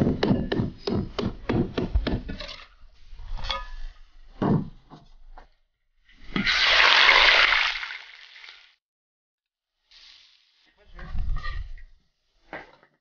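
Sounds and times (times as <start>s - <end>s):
cleaver chopping on wooden block: 0.0s - 2.3s
chicken sizzling in hot oil: 6.3s - 8.8s, 9.8s - 10.7s.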